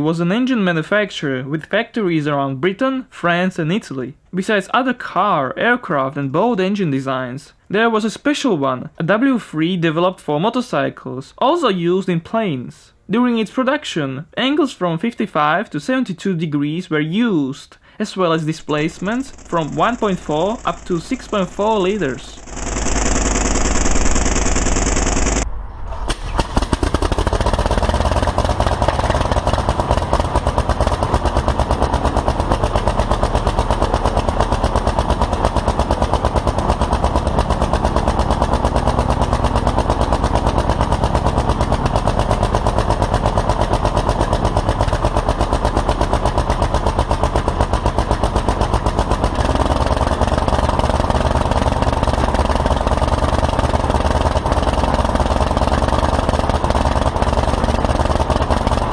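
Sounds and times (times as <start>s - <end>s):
aero engine exhaust beats: 18.6s - 22.7s, 26.2s - 58.9s.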